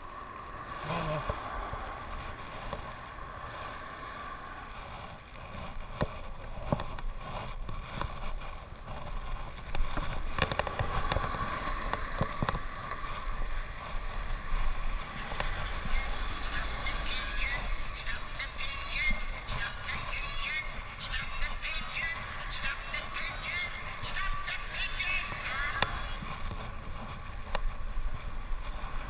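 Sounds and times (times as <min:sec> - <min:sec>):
bicycle tyre noise: 0:00.0 - 0:29.0
wind rumble on microphone: 0:00.0 - 0:29.0.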